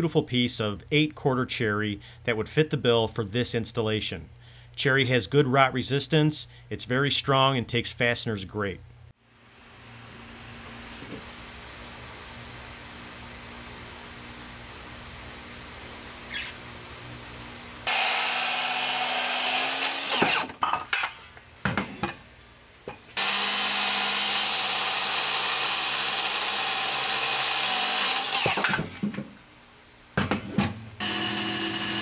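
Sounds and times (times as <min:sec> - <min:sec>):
circular saw cutting wood: 0:17.9 - 0:20.6, 0:23.2 - 0:28.8, 0:31.0 - 0:32.0.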